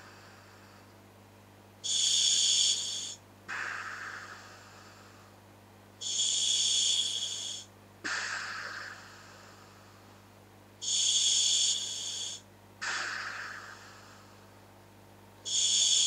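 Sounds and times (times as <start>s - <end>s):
demand valve hiss on inhale: 0.0s - 1.0s, 1.8s - 5.4s, 6.0s - 14.6s, 15.4s - 16.0s
exhale air rush: 1.8s - 5.4s, 6.0s - 14.6s, 15.5s - 16.0s.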